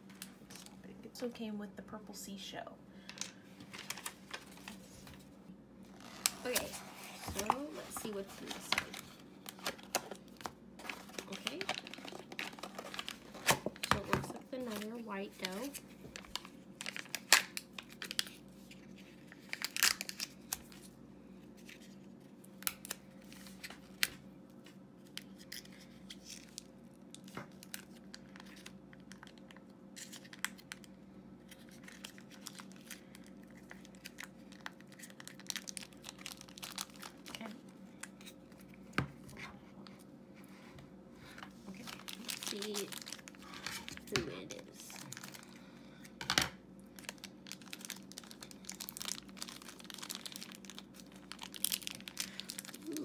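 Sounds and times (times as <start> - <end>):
faint steady hum: 0.0 - 53.0
plastic lid crinkling and tearing: 6.0 - 18.3, 47.0 - 53.0.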